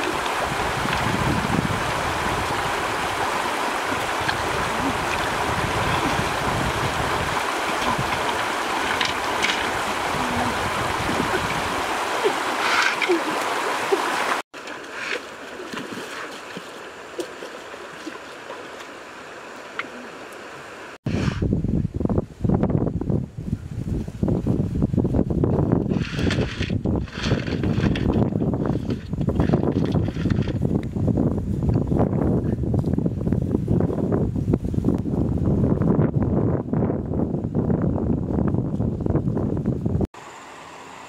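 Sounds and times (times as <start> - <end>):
stream rushing over rocks: 0.0 - 21.0.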